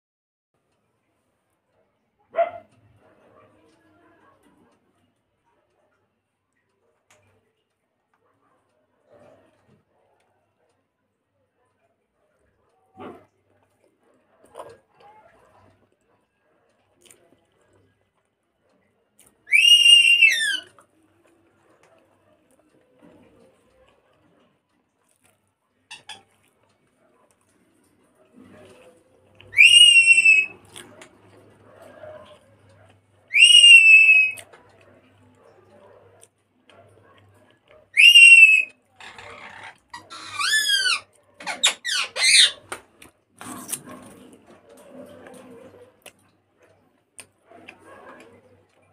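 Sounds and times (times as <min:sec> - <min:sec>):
mouth sounds of eating: 0:16.9 - 0:18.0, 0:30.5 - 0:33.5, 0:43.0 - 0:48.9
high-pitched whistling tone: 0:19.5 - 0:20.7, 0:29.6 - 0:30.6, 0:33.3 - 0:34.4, 0:38.0 - 0:38.7.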